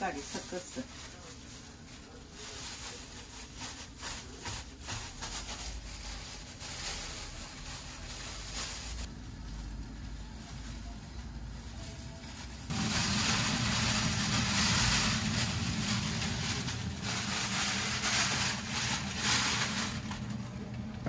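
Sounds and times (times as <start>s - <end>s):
plastic bag crinkling: 0.0s - 20.7s
low steady rumble: 5.5s - 21.0s.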